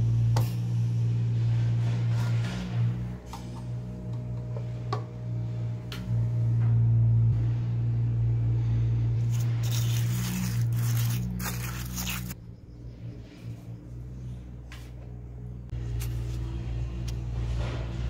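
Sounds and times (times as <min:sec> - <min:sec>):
steady low hum: 0:00.0 - 0:18.0
spoon scraping wet concrete: 0:09.2 - 0:12.4.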